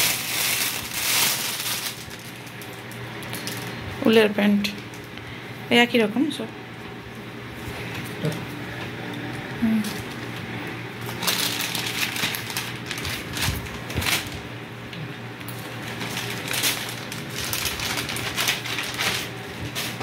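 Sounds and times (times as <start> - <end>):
plastic bags crinkling: 0.0 - 3.8, 11.0 - 14.5, 15.6 - 20.0.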